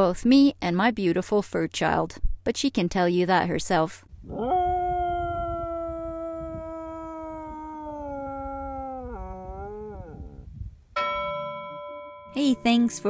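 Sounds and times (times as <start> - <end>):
dog howling: 4.3 - 10.4.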